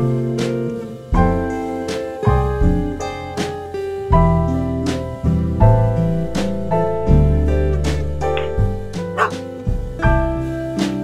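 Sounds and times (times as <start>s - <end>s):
piano background music: 0.0s - 11.0s
dog barking: 8.4s - 9.4s.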